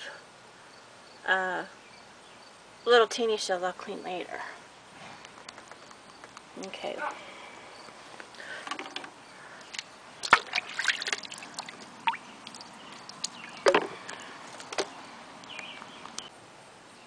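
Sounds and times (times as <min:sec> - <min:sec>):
water sloshing and trickling: 0:09.7 - 0:15.5.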